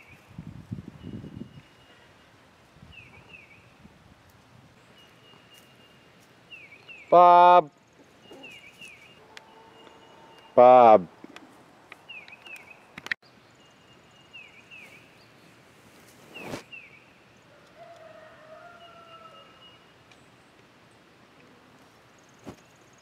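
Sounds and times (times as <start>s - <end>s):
small birds chirping: 4.8s - 18.2s.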